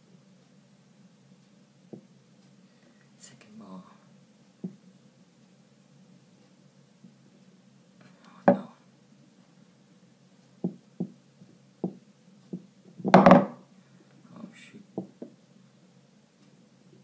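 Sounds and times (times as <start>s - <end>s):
golf balls knocking and clicking: 8.0s - 8.7s, 10.6s - 11.2s, 11.8s - 13.6s, 15.0s - 15.4s.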